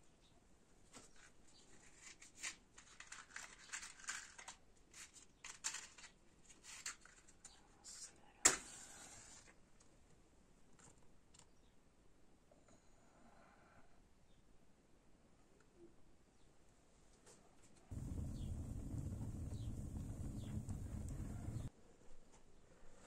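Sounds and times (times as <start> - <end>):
matchbox and kindling rustling: 0.9 - 9.6.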